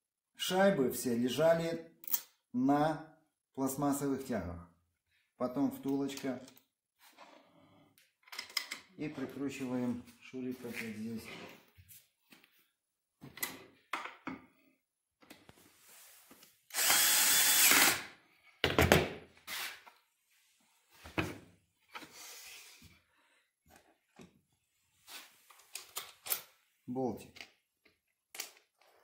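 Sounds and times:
cordless drill driving screw: 16.7 - 18.1.

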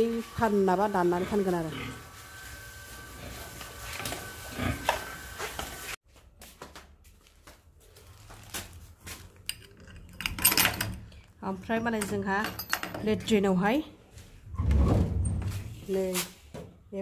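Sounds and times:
key rattling in padlock: 9.5 - 11.1.

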